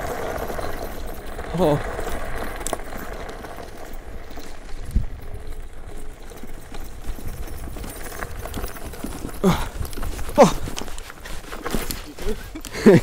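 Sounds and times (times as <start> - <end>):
scooter frame rattling: 0.0 - 13.0.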